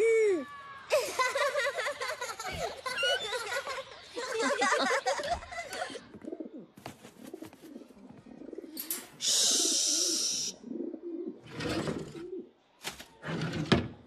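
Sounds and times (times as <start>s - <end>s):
person shushing: 9.2s - 10.6s.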